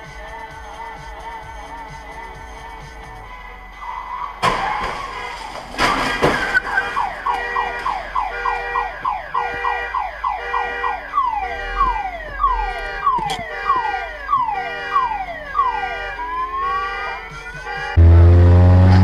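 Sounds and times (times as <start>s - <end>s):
car alarm chirps and whoops: 3.8s - 5.2s, 5.9s - 18.0s.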